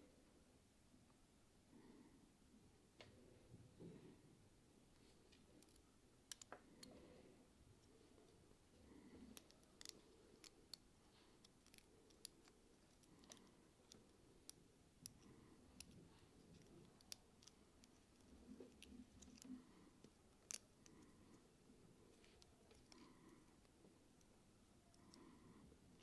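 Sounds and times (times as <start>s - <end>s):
plastic parts clicking and scraping: 5.6s - 7.0s, 9.2s - 21.4s, 22.1s - 24.3s.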